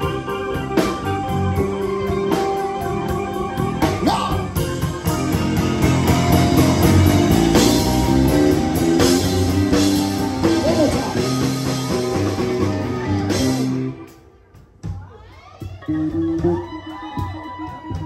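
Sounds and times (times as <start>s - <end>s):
electric guitar: 0.0s - 14.2s
bass guitar: 0.0s - 14.3s, 15.8s - 18.0s
keyboard: 0.0s - 14.6s
drums: 0.0s - 18.0s.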